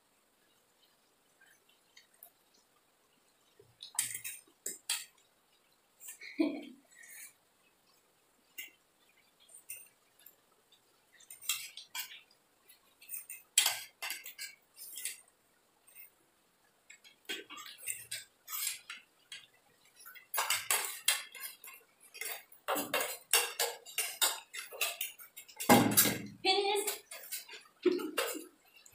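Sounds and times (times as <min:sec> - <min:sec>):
cutlery clinking and scraping plates: 0:03.8 - 0:05.2, 0:09.5 - 0:10.4, 0:11.1 - 0:16.2, 0:16.9 - 0:28.9.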